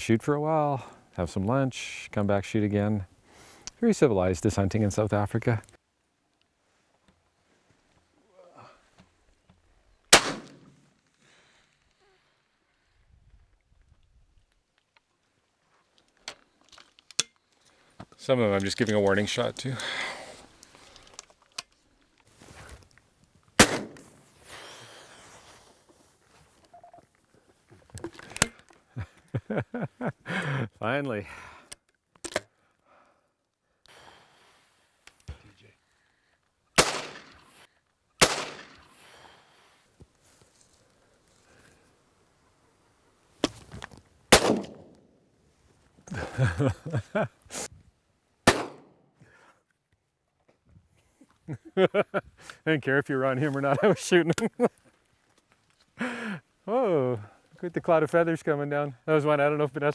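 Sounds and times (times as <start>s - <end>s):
shotgun shots: 10.1s - 10.8s, 23.6s - 24.1s, 36.8s - 37.4s, 38.2s - 38.9s, 44.3s - 44.9s, 48.5s - 48.9s.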